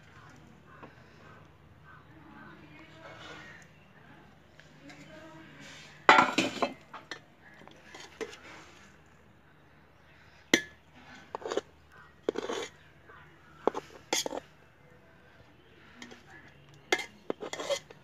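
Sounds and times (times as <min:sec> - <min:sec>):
clattering scrapes: 0:05.6 - 0:07.1, 0:11.2 - 0:12.8, 0:16.9 - 0:18.0
metal utensils clinking on pot: 0:06.1 - 0:08.4, 0:10.6 - 0:12.8, 0:13.6 - 0:14.6, 0:16.9 - 0:18.0.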